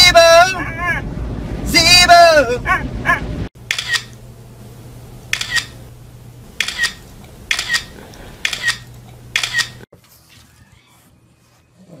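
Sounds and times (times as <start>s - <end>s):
faint steady hum: 0.0s - 9.8s
phone camera shutter clicks: 3.7s - 4.2s, 5.3s - 5.8s, 6.6s - 9.8s.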